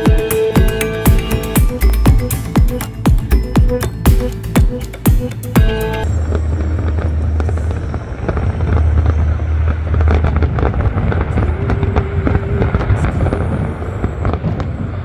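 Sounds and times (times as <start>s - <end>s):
low rumble: 5.6s - 15.0s
fireworks bursting and crackling: 6.0s - 15.0s.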